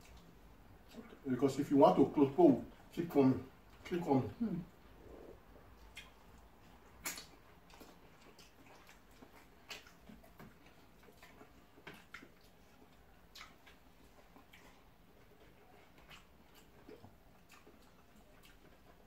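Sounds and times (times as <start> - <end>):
mouth clicks from chewing: 5.8 - 19.0.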